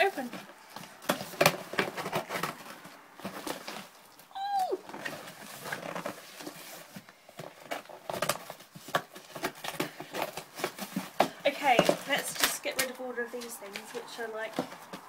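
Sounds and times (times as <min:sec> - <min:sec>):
cardboard box rustling: 0:00.0 - 0:15.0
short high cry: 0:04.3 - 0:04.8.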